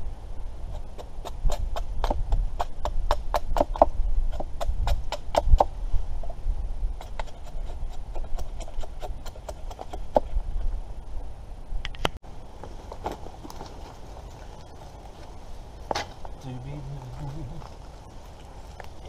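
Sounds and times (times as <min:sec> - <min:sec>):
wind rumble on microphone: 0:00.0 - 0:12.2.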